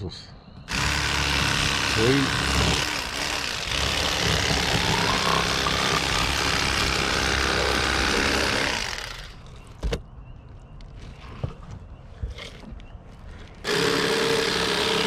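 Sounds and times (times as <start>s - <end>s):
electric fillet knife running: 3.9s - 9.1s.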